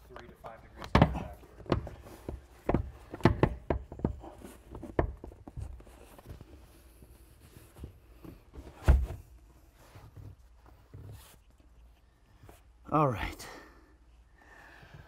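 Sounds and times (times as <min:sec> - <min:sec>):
seat backrest clicks and knocks: 0:00.9 - 0:05.9.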